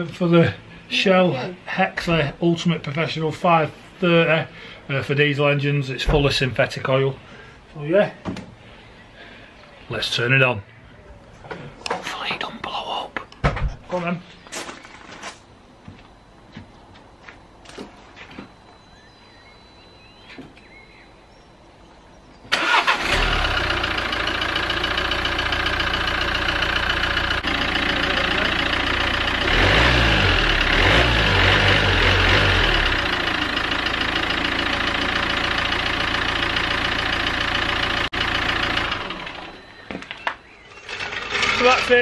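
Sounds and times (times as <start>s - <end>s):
diesel engine starting and idling: 22.5s - 39.8s, 40.8s - 42.0s.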